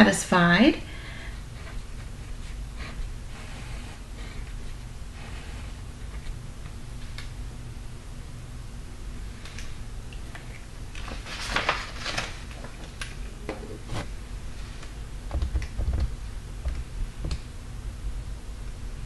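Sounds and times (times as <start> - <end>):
paper sliding across desk: 2.4 - 6.3
light clicks and knocks: 15.3 - 17.5.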